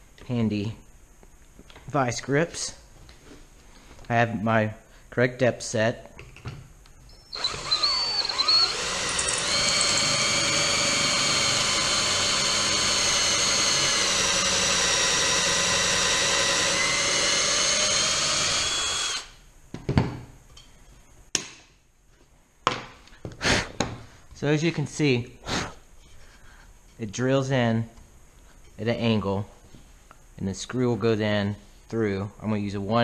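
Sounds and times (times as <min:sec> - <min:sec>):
drill motor whining: 0:07.1 - 0:19.4.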